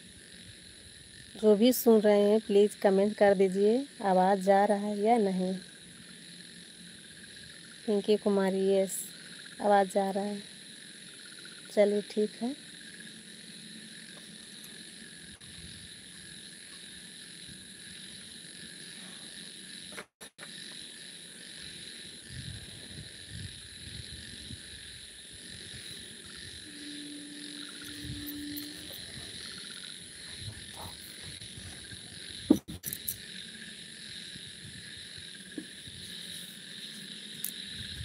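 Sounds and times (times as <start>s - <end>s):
high-pitched chirring: 25.8s - 31.3s
brief low hum: 26.7s - 29.6s.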